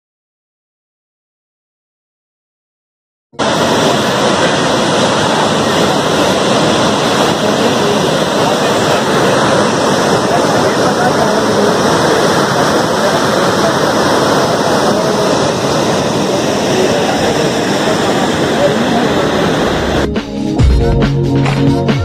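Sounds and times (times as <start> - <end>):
faint voices: 3.4 - 20.1
waterfall rushing: 3.4 - 20.1.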